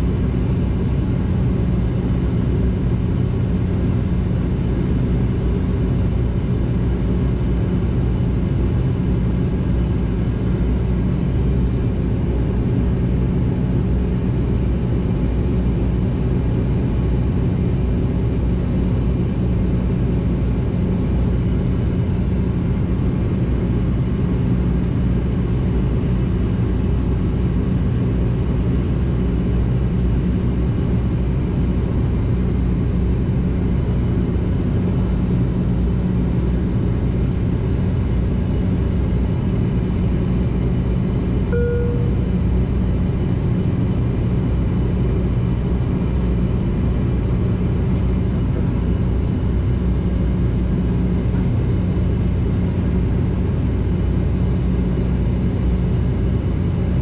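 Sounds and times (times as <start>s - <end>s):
propeller drone inside aircraft cabin: 0.0s - 57.0s.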